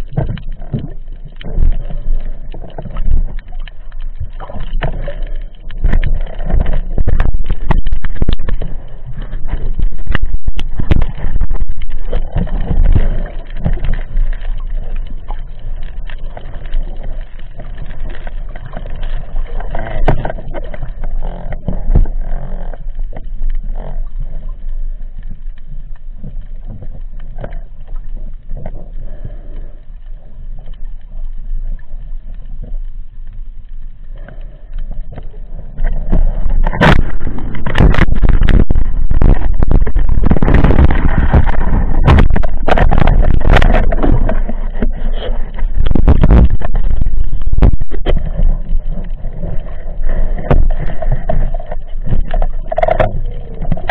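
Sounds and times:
underwater knocks: 0:00.0 - 0:16.7, 0:17.4 - 0:24.1, 0:35.1 - 0:53.9
muffled underwater rumble: 0:00.0 - 0:53.9.

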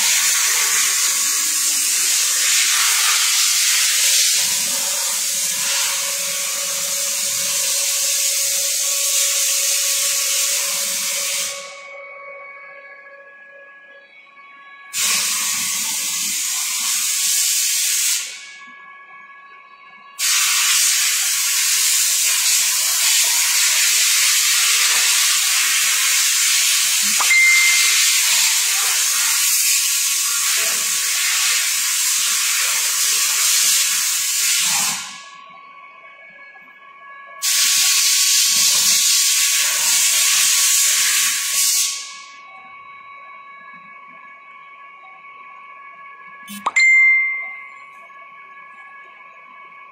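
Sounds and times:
faint machine whine: 0:00.0 - 0:49.9
pressurised spray hissing: 0:20.2 - 0:26.7.

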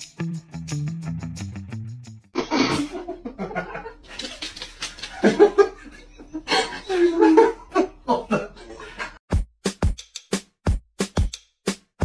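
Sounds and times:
laughter: 0:02.4 - 0:09.2.

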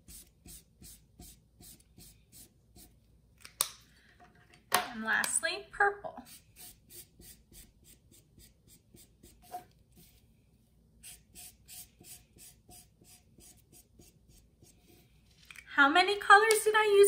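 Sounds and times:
marker scribbling on paper: 0:00.0 - 0:03.0, 0:06.2 - 0:10.2, 0:11.0 - 0:15.0.

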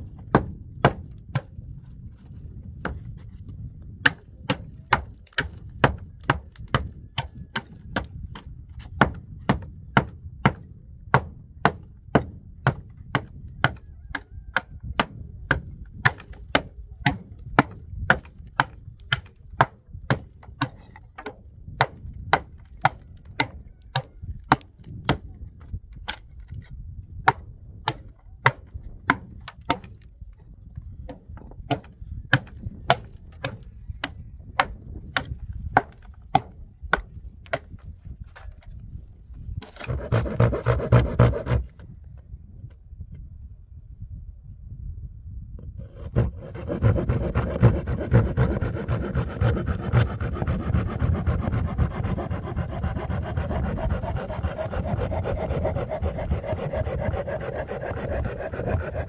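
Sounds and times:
pick chipping mortar: 0:03.8 - 0:25.4, 0:31.1 - 0:38.7, 0:39.6 - 0:41.8, 0:45.8 - 0:59.0.

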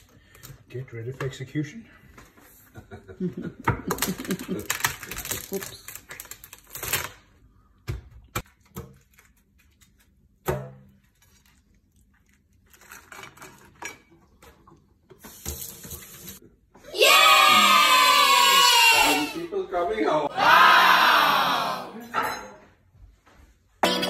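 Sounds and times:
people cheering: 0:16.9 - 0:19.6, 0:20.2 - 0:22.1.

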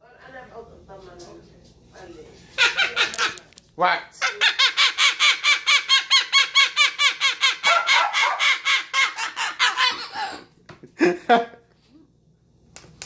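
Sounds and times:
cockatoo laugh-like calls: 0:04.3 - 0:10.5.

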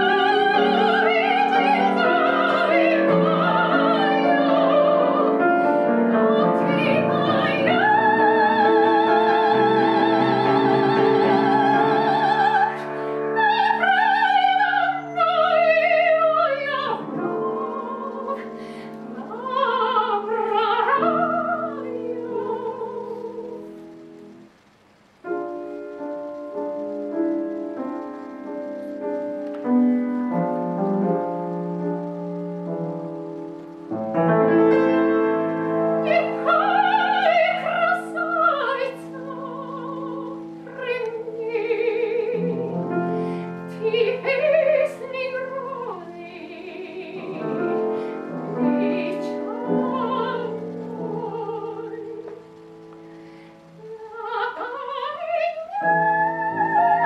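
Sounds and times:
woman singing operatically: 0:00.0 - 0:23.8, 0:35.9 - 0:52.6, 0:53.8 - 0:57.0
grand piano: 0:00.0 - 0:57.0.

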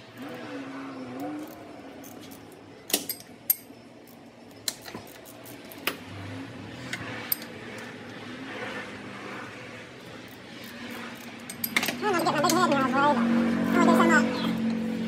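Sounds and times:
metal hand tools clinking: 0:11.2 - 0:12.6.

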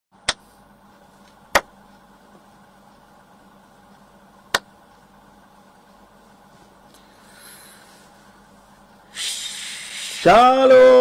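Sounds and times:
faint steady hum: 0:00.2 - 0:11.0
hand claps: 0:01.5 - 0:01.7.

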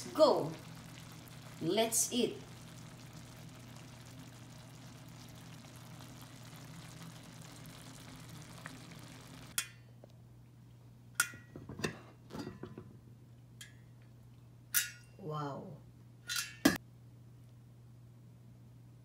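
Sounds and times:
low hum: 0:00.0 - 0:09.6
sauce simmering in a pot: 0:00.0 - 0:09.7
metal pot lid clinking: 0:11.2 - 0:12.8, 0:16.3 - 0:16.8.

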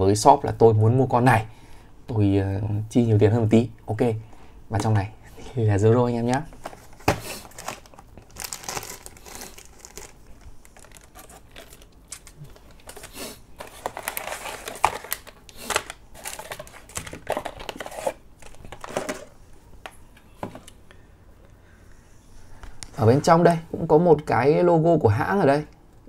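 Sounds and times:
cardboard packaging crinkling: 0:06.6 - 0:19.3.

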